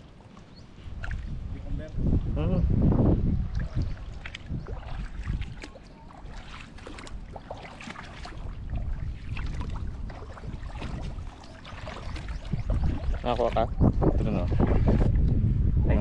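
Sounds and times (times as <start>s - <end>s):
wind rumble on microphone: 0.0s - 16.0s
seawater sloshing and splashing: 3.3s - 15.3s.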